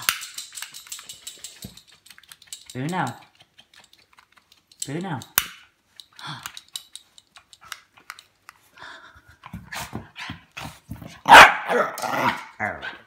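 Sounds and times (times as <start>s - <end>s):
puppy barking: 11.2s - 13.0s
puppy growling and yapping: 11.3s - 13.0s.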